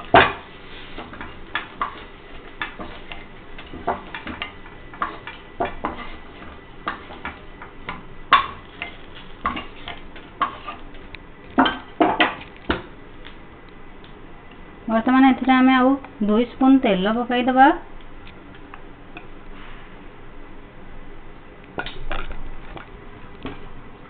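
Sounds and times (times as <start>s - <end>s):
utensil clinking and scraping pan: 8.3s - 12.5s.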